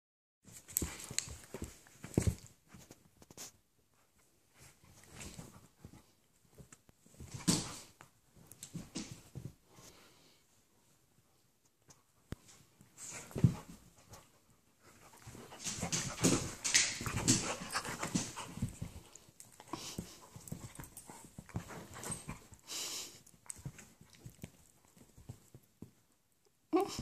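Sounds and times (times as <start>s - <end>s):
paws scuffling on cushions: 0.4s - 10.2s, 12.4s - 26.1s
dogs panting: 13.0s - 24.0s.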